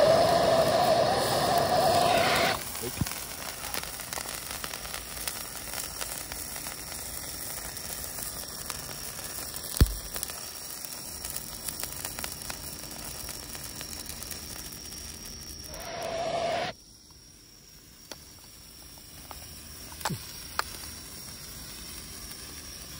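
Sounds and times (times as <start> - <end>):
firework sizzling and crackling: 0.0 - 22.9.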